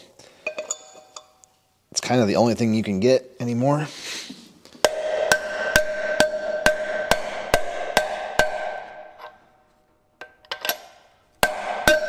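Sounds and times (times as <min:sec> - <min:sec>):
metal hub ringing: 0:04.8 - 0:09.4, 0:11.4 - 0:12.0
hammer blows on metal: 0:04.9 - 0:09.2, 0:11.4 - 0:12.0.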